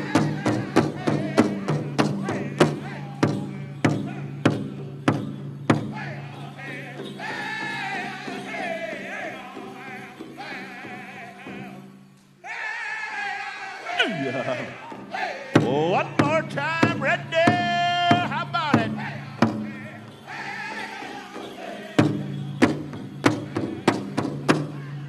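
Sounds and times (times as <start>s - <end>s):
group singing in high voices: 0.0s - 4.8s, 5.9s - 25.0s
big drum beating: 0.0s - 6.3s, 14.7s - 20.2s
loud voice: 13.6s - 20.8s.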